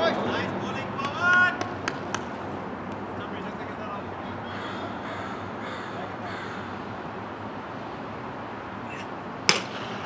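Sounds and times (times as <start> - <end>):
open-air background: 0.0 - 10.0
cricket bat striking ball: 9.4 - 10.0.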